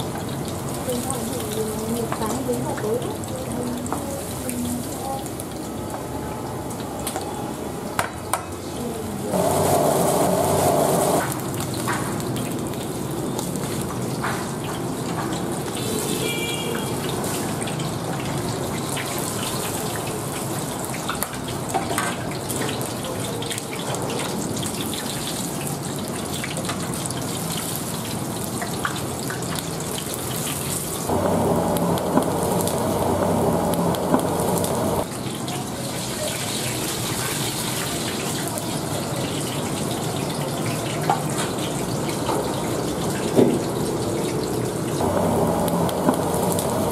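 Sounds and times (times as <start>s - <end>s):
oil sizzling and bubbling: 0.0s - 46.9s
loud steady hum: 9.2s - 11.3s, 31.1s - 35.1s, 45.0s - 46.9s.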